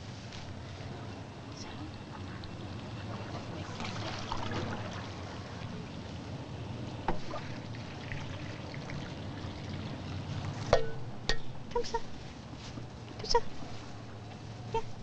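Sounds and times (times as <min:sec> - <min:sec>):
water trickling: 0:01.2 - 0:11.8.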